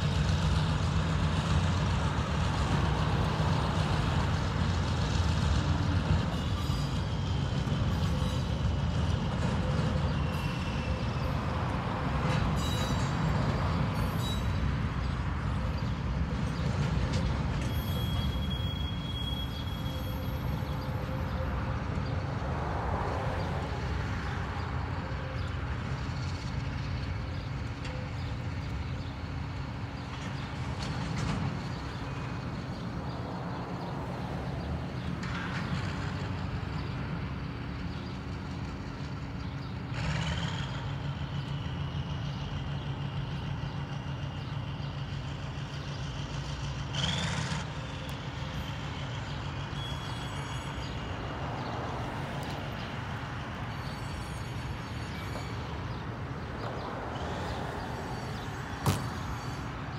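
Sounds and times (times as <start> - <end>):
diesel locomotive droning: 0.0 - 59.9
high-pitched squeal: 57.2 - 59.9.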